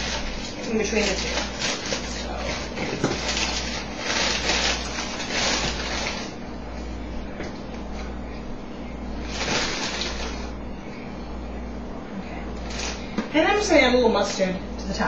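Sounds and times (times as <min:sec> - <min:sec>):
plastic bag crinkling: 0:00.0 - 0:06.4, 0:09.2 - 0:10.6
low steady hum: 0:00.0 - 0:15.0.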